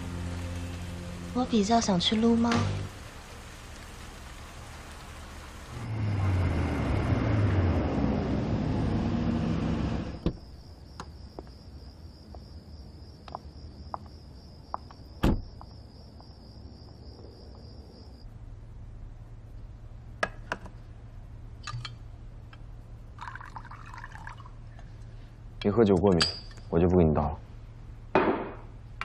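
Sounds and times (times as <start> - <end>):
low steady hum: 0.0 - 6.5, 9.9 - 29.0
crickets trilling: 0.9 - 8.7, 9.6 - 18.6, 21.3 - 27.4
car driving on wet road: 2.1 - 10.2
sharp knock: 28.2 - 28.7.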